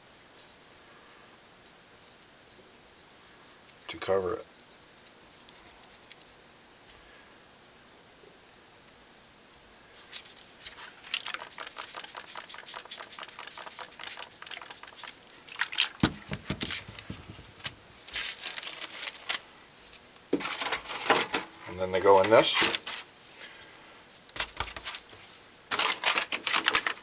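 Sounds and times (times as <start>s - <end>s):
plastic zip bag crinkling: 10.2s - 20.6s, 25.7s - 27.0s
spray bottle misting: 10.9s - 17.1s.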